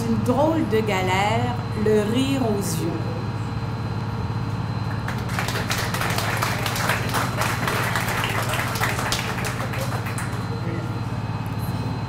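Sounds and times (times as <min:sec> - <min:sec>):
boat engine humming: 0:00.0 - 0:12.0
light applause: 0:04.9 - 0:10.7.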